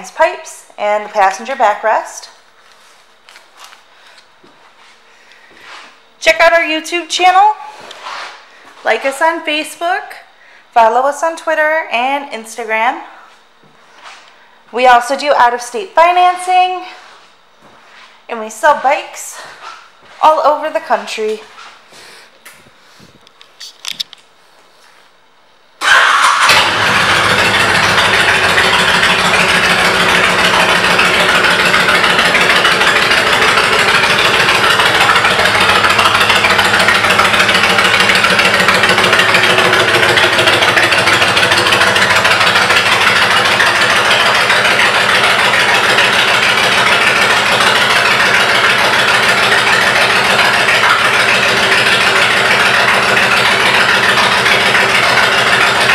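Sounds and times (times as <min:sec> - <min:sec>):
motorcycle engine starting and idling: 0:25.8 - 0:55.9.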